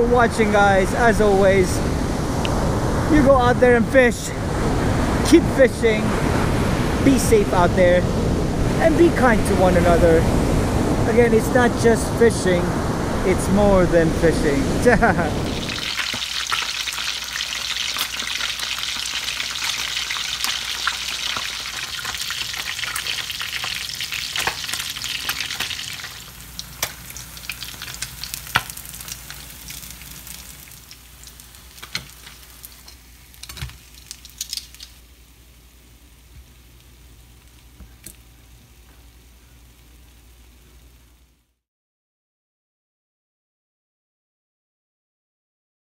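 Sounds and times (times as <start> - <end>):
fish sizzling in hot oil: 15.4 - 41.2.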